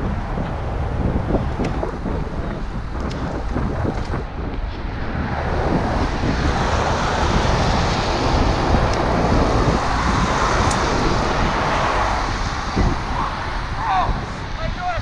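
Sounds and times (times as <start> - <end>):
wind on microphone: 0.0 - 15.0
tyres hissing on wet road: 5.4 - 14.4.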